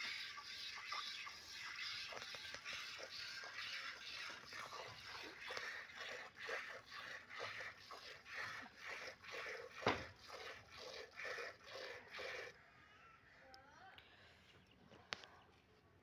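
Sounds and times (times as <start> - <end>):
milk squirting into container: 0.0 - 12.6.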